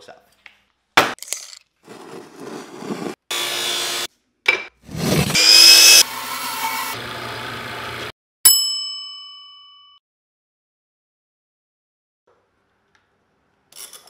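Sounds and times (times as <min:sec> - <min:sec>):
miter saw motor spinning: 0:05.2 - 0:08.1.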